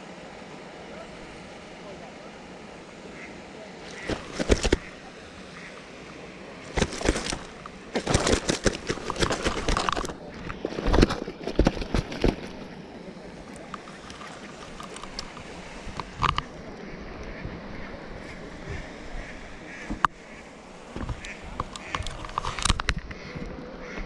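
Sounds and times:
landing net knock: 3.9s - 4.9s, 6.7s - 12.6s
wet slaps and knocks of fish: 6.8s - 10.1s.

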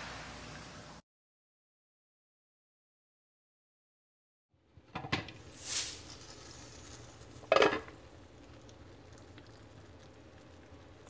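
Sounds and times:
brief hiss: 5.5s - 6.2s.

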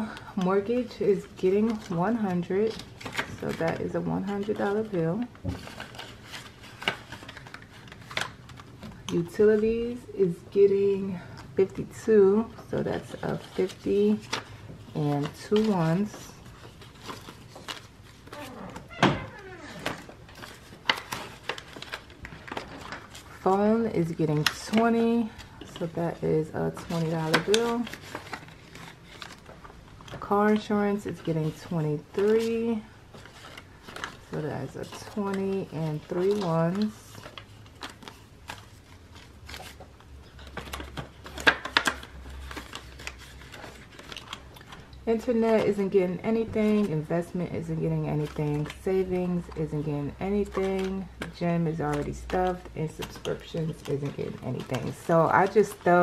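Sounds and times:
paper rustling: 0.0s - 10.0s, 10.9s - 56.0s
plastic pocket crinkling: 13.0s - 26.0s, 26.7s - 45.7s, 50.2s - 56.0s.

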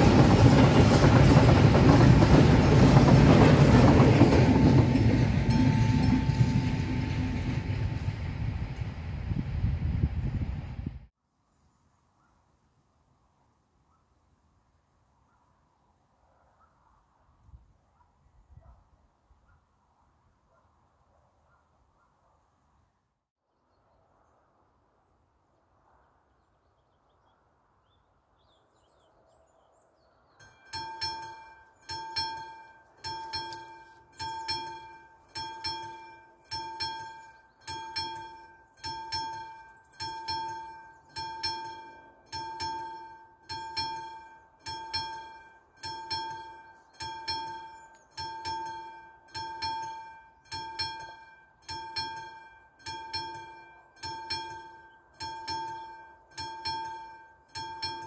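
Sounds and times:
level crossing warning bells: 0.0s - 8.7s, 30.4s - 58.0s.

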